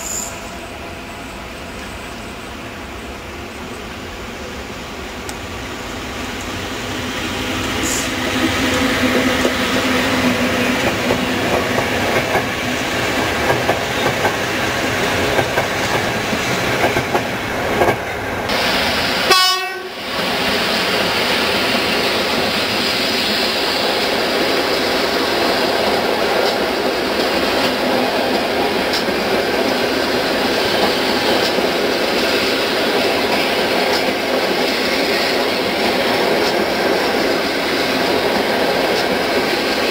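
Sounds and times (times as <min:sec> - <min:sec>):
train wheels rumbling: 0:00.0 - 0:39.9
wheels clacking over rail joints: 0:07.7 - 0:18.1, 0:25.1 - 0:39.9.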